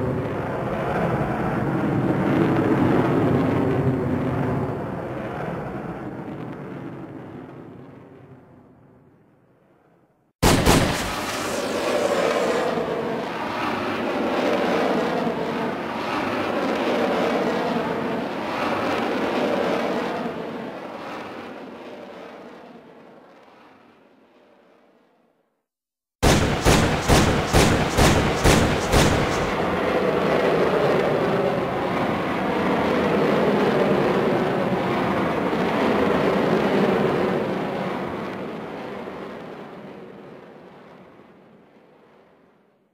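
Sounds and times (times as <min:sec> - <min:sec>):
loud hit: 0:10.4 - 0:12.6, 0:26.2 - 0:29.6
rough rushing rumble: 0:10.4 - 0:13.2, 0:26.2 - 0:30.0
noisy sustained tail: 0:10.4 - 0:13.4, 0:26.2 - 0:30.0.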